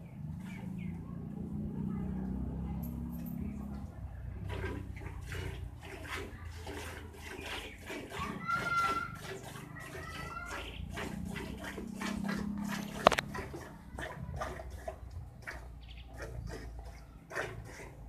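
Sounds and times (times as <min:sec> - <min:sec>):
milk squirting into steel pail: 0:04.4 - 0:18.0.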